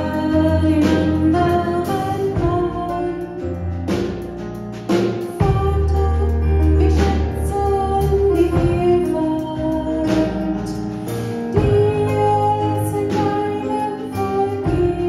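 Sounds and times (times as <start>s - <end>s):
digital piano: 0.0s - 15.0s
woman singing worship song: 11.5s - 15.0s.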